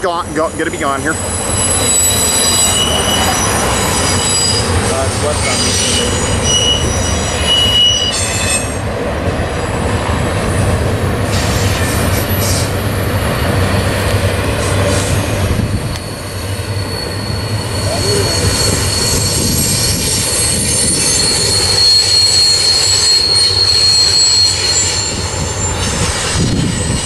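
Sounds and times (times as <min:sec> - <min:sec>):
freight train wheels rumbling: 0:00.0 - 0:27.0
high wheel squeal: 0:00.2 - 0:08.9, 0:11.3 - 0:27.0.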